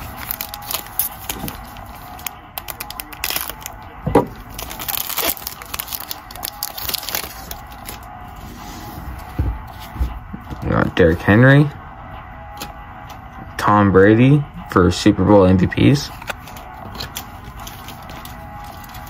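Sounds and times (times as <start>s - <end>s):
cards and packaging rustling: 0.0s - 3.8s, 4.4s - 11.2s, 15.9s - 19.0s.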